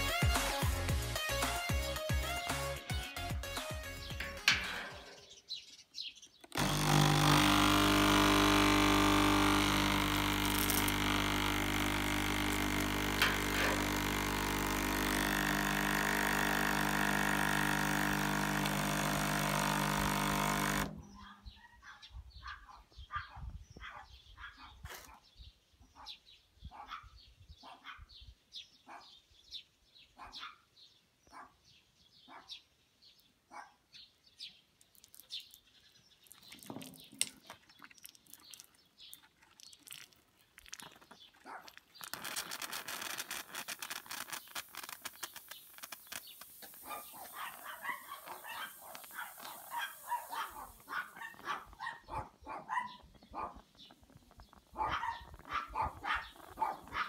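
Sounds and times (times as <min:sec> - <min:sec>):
dog barking: 0:21.6 - 0:25.2, 0:26.0 - 0:28.1, 0:28.9 - 0:29.1, 0:30.2 - 0:30.7, 0:31.3 - 0:31.6, 0:32.3 - 0:32.6, 0:33.5 - 0:33.8, 0:41.4 - 0:41.8, 0:46.8 - 0:53.6, 0:54.8 - 0:57.0
steady hiss: 0:42.6 - 0:51.2.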